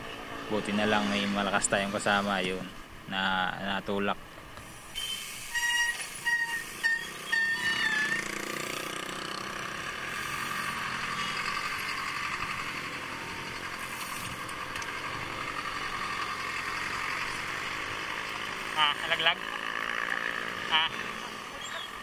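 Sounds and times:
vehicle engine running: 7.7 - 22.0.

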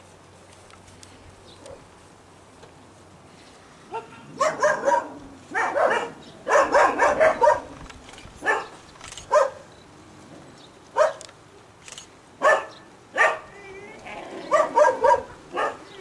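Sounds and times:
dog barking and yelping: 3.9 - 9.7, 11.0 - 11.3, 12.4 - 16.0.

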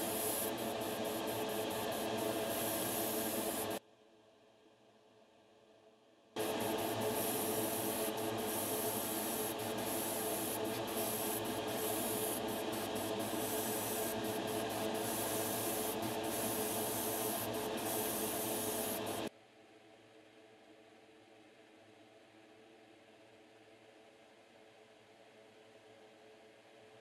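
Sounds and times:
airbrush high hiss: 0.0 - 3.8, 6.4 - 19.3
spray equipment motor hum: 0.0 - 3.8, 6.4 - 19.3.

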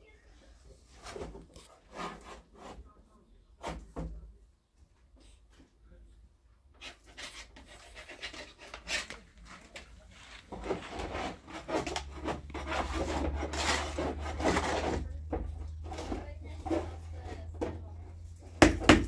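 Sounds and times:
scraping wood by hand: 0.9 - 2.9, 6.8 - 19.0.

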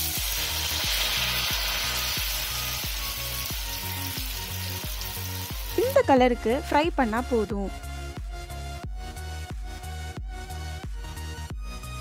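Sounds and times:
potato slices sizzling in oil: 0.0 - 6.2
background music with steady beat: 0.0 - 12.0.

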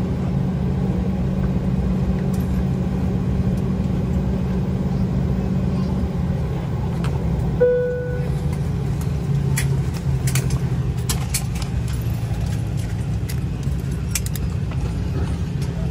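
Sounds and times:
low cabin hum: 0.0 - 15.9
airliner cabin chime: 7.6 - 8.4.

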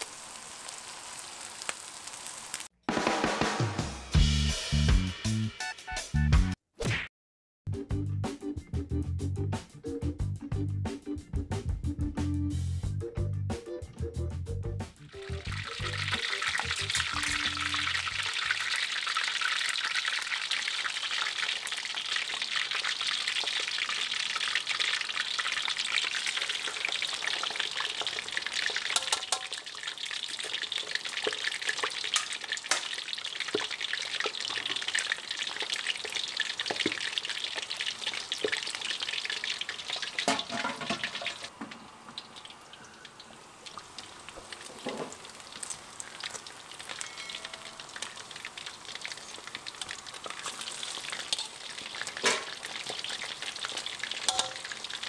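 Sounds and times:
meat deep-frying in hot oil: 0.0 - 2.7, 15.0 - 55.0.

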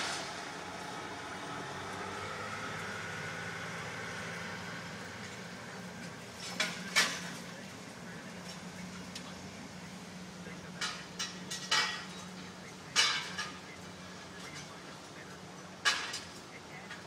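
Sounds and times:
truck engine running: 0.0 - 17.0
faint whine: 4.6 - 17.0.

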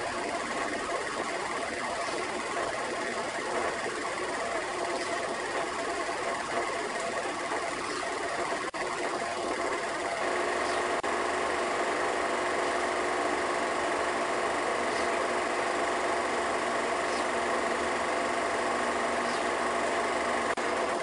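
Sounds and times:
film projector running: 0.0 - 21.0.

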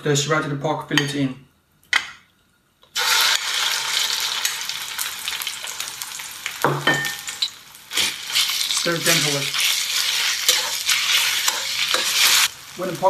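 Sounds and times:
meat sizzling in hot oil: 3.0 - 13.0
metal spatula scraping wok: 7.2 - 12.5.

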